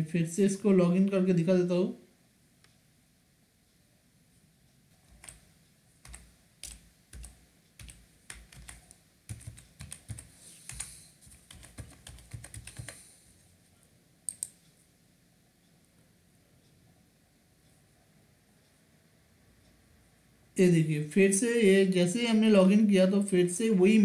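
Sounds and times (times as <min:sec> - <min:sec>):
typing on computer keyboard: 0:05.0 - 0:13.0, 0:14.3 - 0:14.6
sharp clicks: 0:14.3 - 0:14.6.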